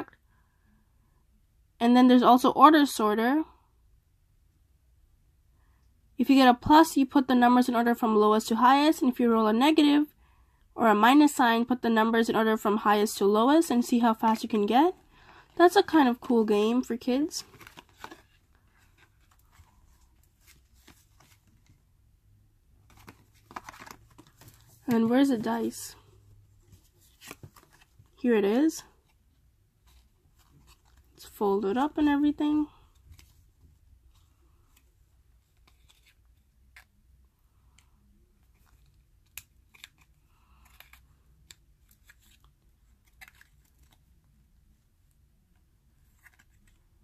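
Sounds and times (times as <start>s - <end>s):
paper crinkling: 17.4s - 21.8s, 22.8s - 25.5s, 26.6s - 28.2s, 38.4s - 44.2s
paper rustling: 17.4s - 21.8s, 22.8s - 25.7s, 26.6s - 28.2s, 35.4s - 36.9s.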